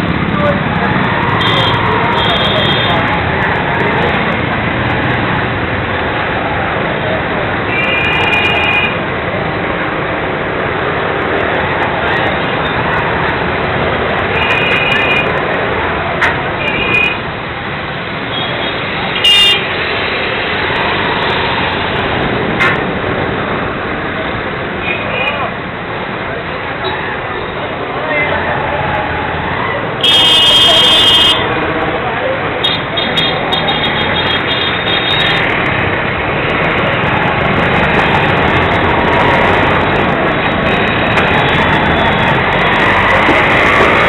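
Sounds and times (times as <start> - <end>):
motorcycle engine and road noise: 0.0 - 44.0
street traffic: 0.0 - 44.0
vehicle horn honk: 30.0 - 31.4.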